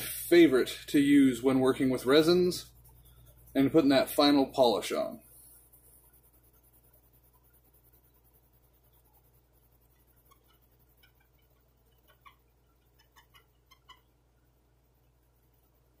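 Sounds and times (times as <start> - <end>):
faint low hum: 0.0 - 16.0.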